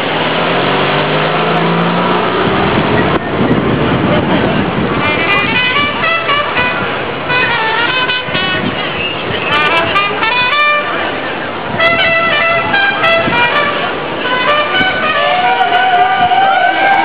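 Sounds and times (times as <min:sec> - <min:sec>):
traffic noise: 0:00.0 - 0:17.0
voices: 0:01.4 - 0:17.0
horn toots: 0:04.8 - 0:17.0
music: 0:05.0 - 0:08.8, 0:09.5 - 0:10.9, 0:11.8 - 0:17.0.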